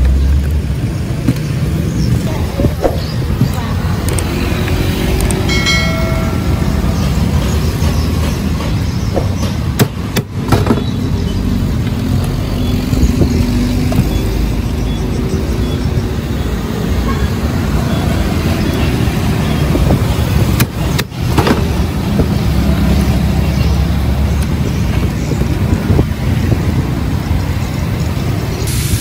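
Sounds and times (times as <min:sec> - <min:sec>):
road traffic passing: 0:00.0 - 0:29.0.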